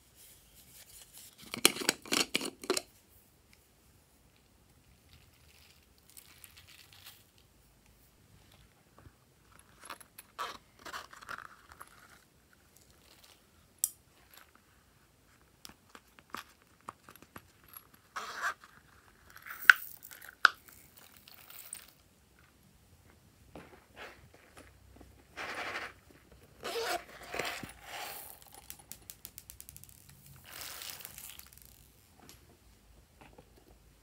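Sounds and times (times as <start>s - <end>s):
silicone purses being handled: 8.4s - 13.5s, 14.1s - 22.0s, 23.5s - 32.4s
small items dropping into glass dish: 29.7s - 31.9s.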